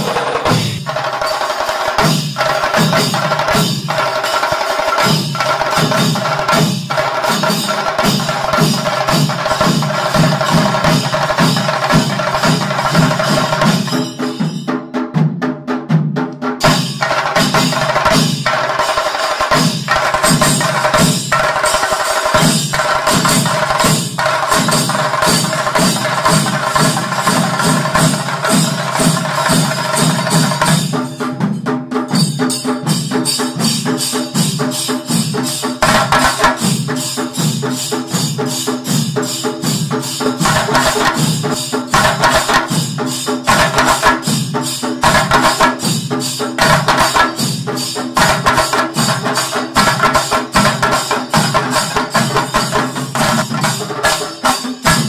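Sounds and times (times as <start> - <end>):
drums beaten with sticks: 0.0 - 55.0.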